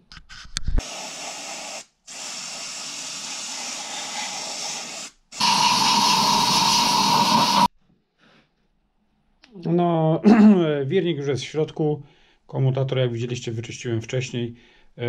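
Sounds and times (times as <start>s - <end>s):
aerosol spray hiss: 0.8s - 7.7s
compressed air blow gun blast: 0.8s - 7.7s.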